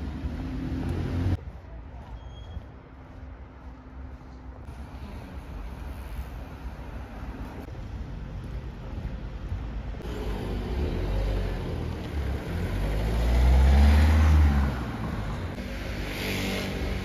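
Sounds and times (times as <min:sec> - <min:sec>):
car driving past: 0:10.0 - 0:17.0.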